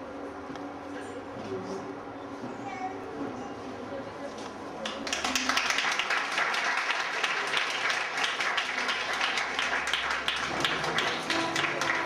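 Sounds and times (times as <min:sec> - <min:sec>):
crowd applauding: 0:04.8 - 0:12.0.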